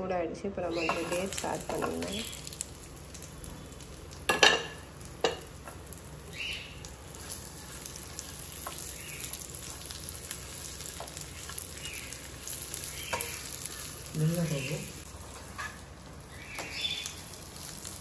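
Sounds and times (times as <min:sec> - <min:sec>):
food sizzling in a pan: 0:00.6 - 0:18.0
stirring strokes against a pan: 0:04.9 - 0:18.0.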